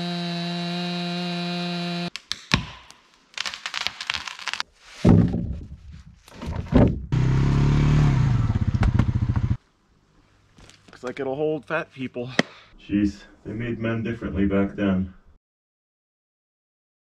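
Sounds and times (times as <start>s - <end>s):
atv engine running: 7.2s - 9.6s.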